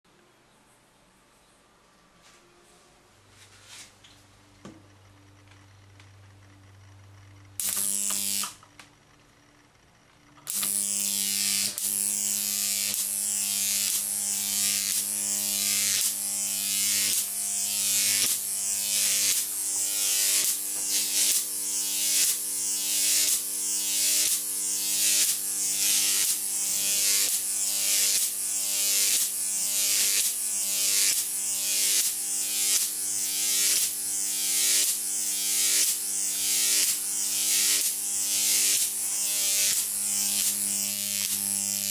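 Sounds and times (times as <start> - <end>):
electric arc buzzing and crackling: 4.7 - 41.9.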